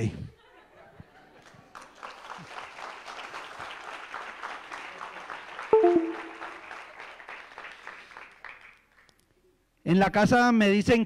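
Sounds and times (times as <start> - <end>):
audience applauding: 1.4 - 9.1.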